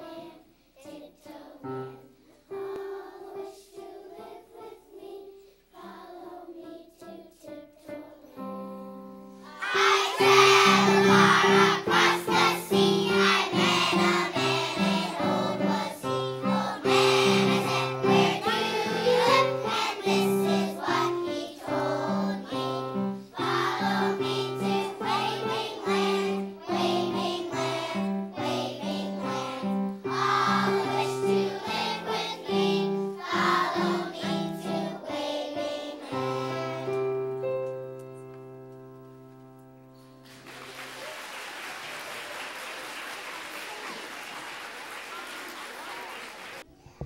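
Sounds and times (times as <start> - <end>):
children singing in unison: 0.0 - 8.8, 9.4 - 37.3.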